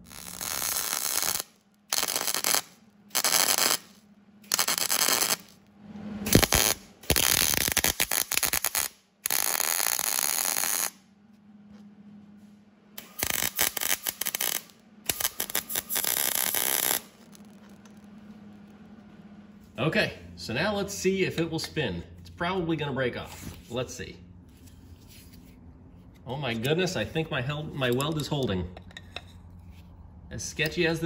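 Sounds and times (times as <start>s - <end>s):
welder arc crackling: 0.0s - 5.7s, 6.3s - 11.0s, 13.0s - 18.9s
faint low hum: 0.0s - 7.5s, 10.9s - 31.0s.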